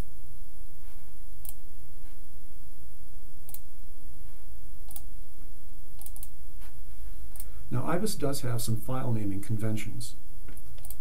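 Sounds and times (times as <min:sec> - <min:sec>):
steady low hum: 0:00.0 - 0:11.0
computer mouse clicking: 0:01.4 - 0:02.2, 0:03.5 - 0:03.7, 0:04.9 - 0:05.1, 0:06.0 - 0:06.4, 0:07.3 - 0:07.5, 0:10.5 - 0:11.0.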